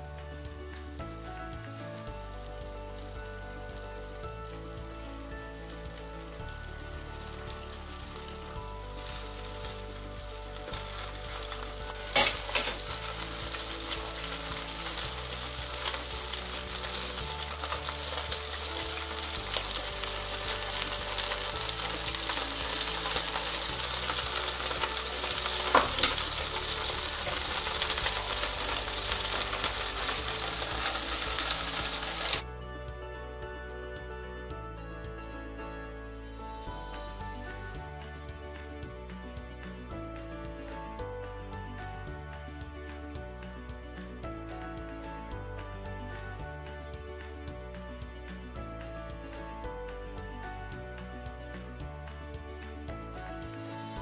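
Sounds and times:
fish sizzling in oil: 1.9s - 32.4s.

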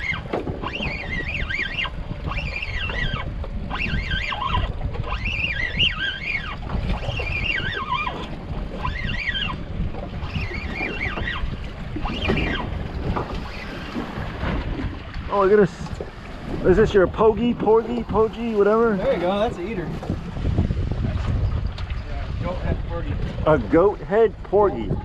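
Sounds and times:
fishing reel whining: 0.0s - 12.7s
boat rumble on water: 0.0s - 25.0s
wind buffeting microphone: 0.0s - 25.0s.

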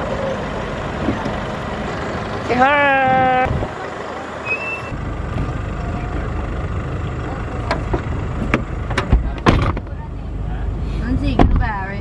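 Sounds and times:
car cabin low rumble: 0.0s - 12.0s.

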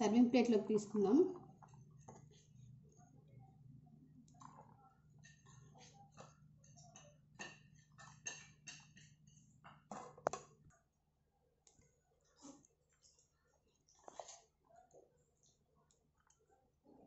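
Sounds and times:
spatula clicking and scraping plate: 4.4s - 10.6s.

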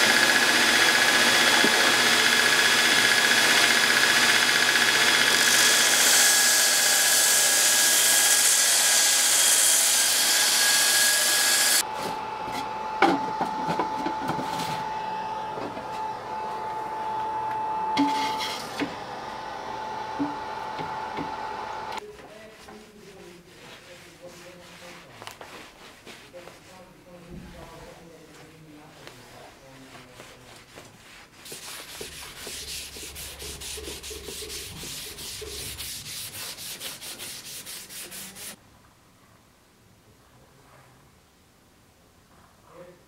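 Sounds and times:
belt grinder grinding steel: 0.0s - 11.8s.

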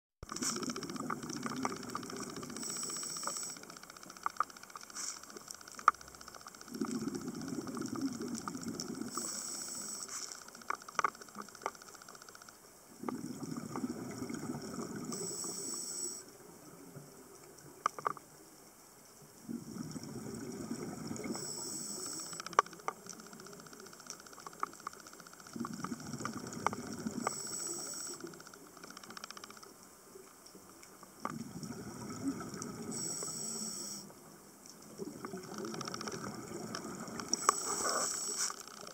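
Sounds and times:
small sharp clicks: 0.2s - 13.2s, 17.3s - 18.4s, 21.2s - 31.4s, 32.6s - 38.9s
regulator inhalation hiss: 2.5s - 3.7s, 4.9s - 5.5s, 9.1s - 10.4s, 15.2s - 16.3s, 21.3s - 22.6s, 27.2s - 28.4s, 32.9s - 34.1s, 37.3s - 38.8s.

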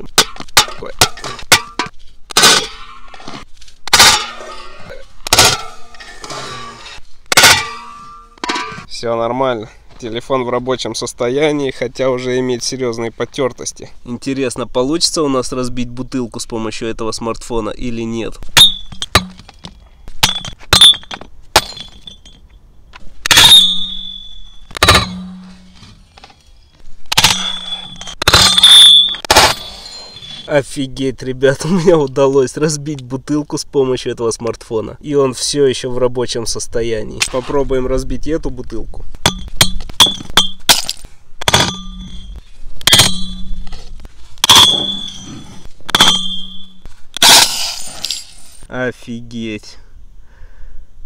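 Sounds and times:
glass ringing: 18.6s - 19.4s, 23.3s - 25.7s, 27.2s - 30.5s, 41.4s - 43.7s, 44.4s - 48.2s
glass bottle breaking: 20.2s - 22.4s, 23.3s - 25.6s, 27.1s - 30.5s, 39.2s - 43.6s, 44.4s - 45.2s, 45.9s - 48.4s.

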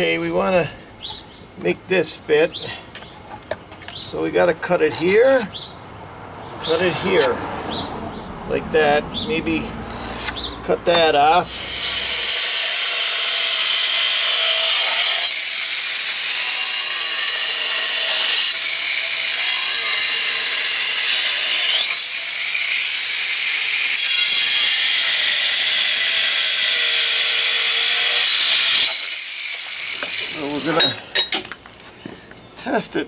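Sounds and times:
angle grinder cutting stone: 6.6s - 7.4s, 9.4s - 31.3s.

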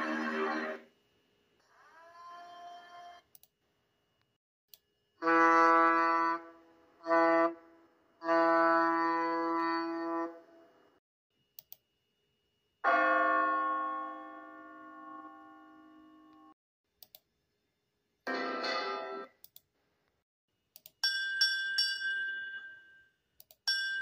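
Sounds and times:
ship's horn blasts: 5.2s - 10.4s
clock-tower bell ringing: 12.8s - 16.1s.

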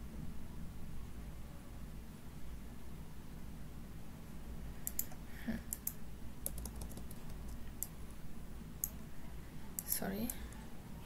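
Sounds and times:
low steady hum: 0.0s - 11.0s
keyboard typing clicks: 4.8s - 8.2s.

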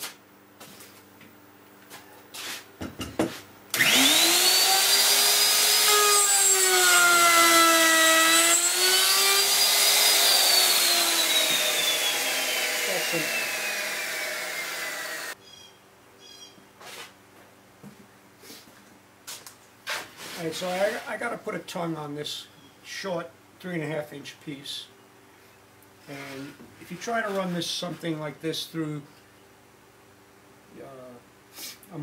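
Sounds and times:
electric router cutting wood: 3.8s - 15.4s.

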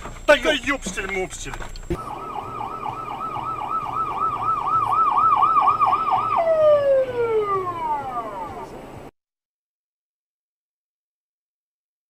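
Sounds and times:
ambulance siren wailing: 1.9s - 9.1s.

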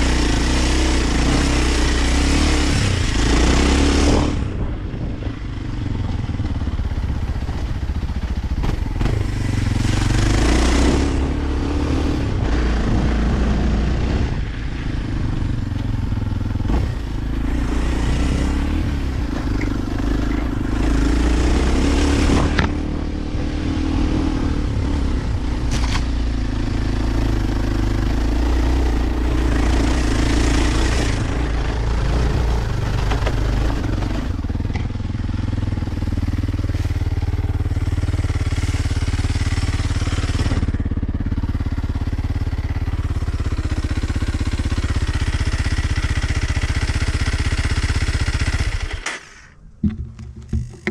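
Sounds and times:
dirt bike engine revving: 0.0s - 5.1s, 8.3s - 50.9s
knocks and clatter: 49.8s - 50.9s.

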